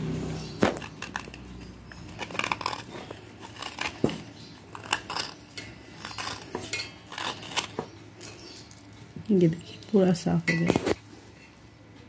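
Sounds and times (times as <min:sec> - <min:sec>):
knife blade scraping wet clay: 0:00.6 - 0:08.8.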